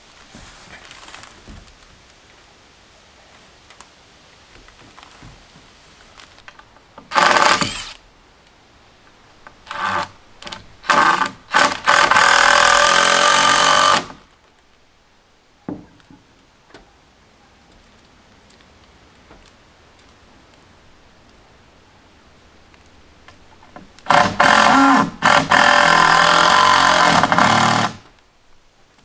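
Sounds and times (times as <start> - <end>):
power tool running: 7.1 - 8.0, 10.9 - 14.1, 24.1 - 28.0.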